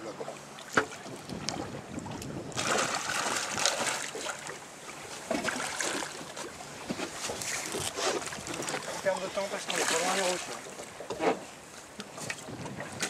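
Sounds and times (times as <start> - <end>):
fish thrashing and splashing water: 2.6 - 4.6, 5.3 - 6.5, 7.1 - 10.7.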